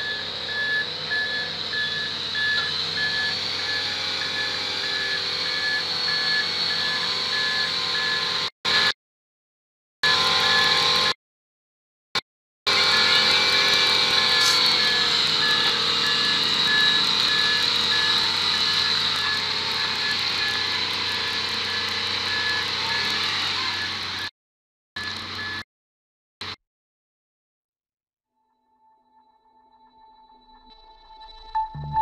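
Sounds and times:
truck diesel engine under load: 0:00.0 - 0:08.5, 0:12.7 - 0:24.3.

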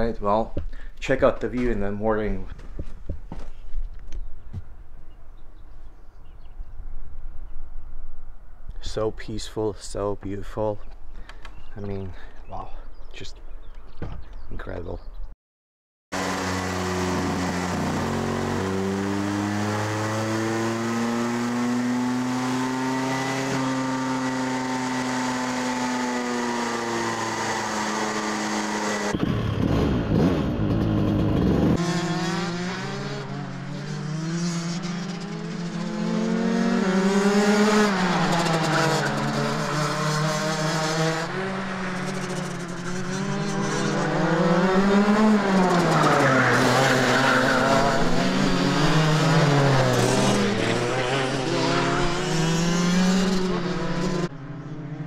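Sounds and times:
kart engine on dyno: 0:16.1 - 0:55.0
racing kart engines revving: 0:16.2 - 0:55.0.

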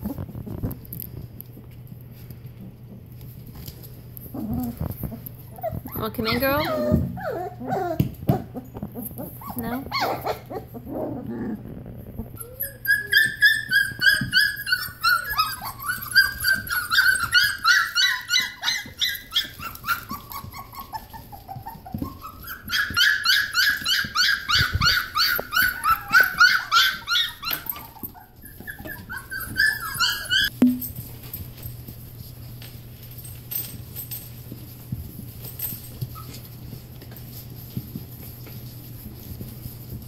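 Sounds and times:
puppies squealing and whining: 0:04.2 - 0:30.5, 0:35.6 - 0:36.8.

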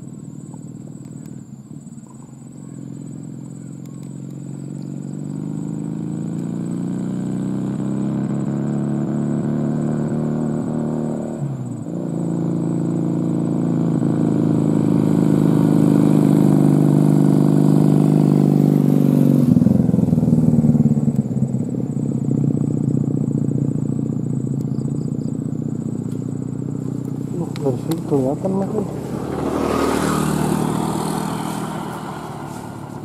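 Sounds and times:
diesel truck engine passing: 0:25.5 - 0:33.0.

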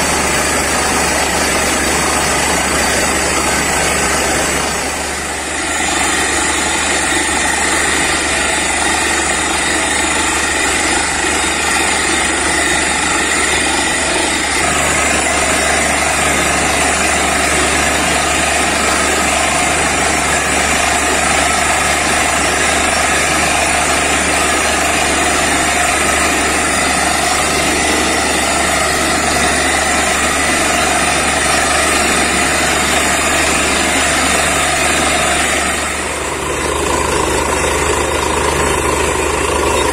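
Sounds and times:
drilling rig engine and compressor: 0:00.0 - 0:39.9.

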